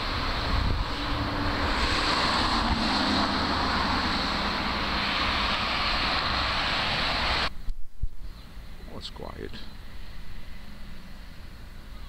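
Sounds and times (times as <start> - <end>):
low engine hum: 0.0 - 7.6
road traffic: 0.0 - 12.0.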